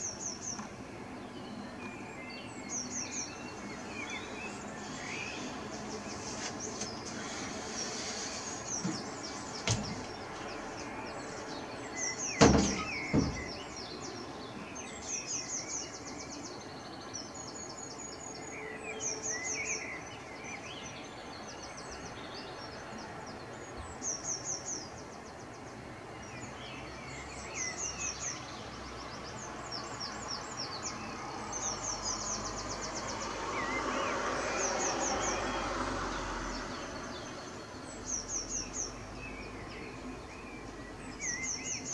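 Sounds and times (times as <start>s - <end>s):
soft bird chirps: 0.0s - 23.2s
sharp knocks: 8.8s - 10.4s, 12.4s - 13.6s.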